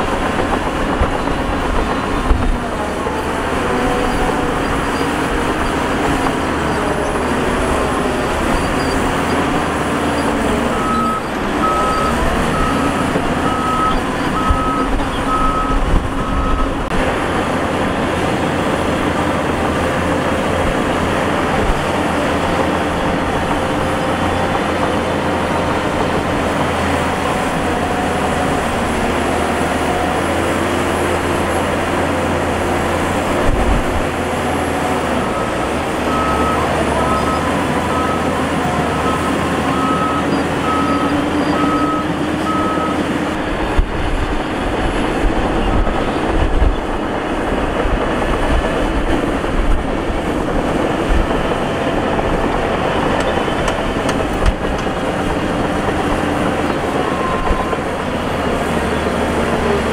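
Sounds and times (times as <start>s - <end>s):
heavy diesel machinery rumbling: 0.0s - 59.9s
reversing alarm beeping: 8.4s - 16.8s, 35.2s - 43.1s.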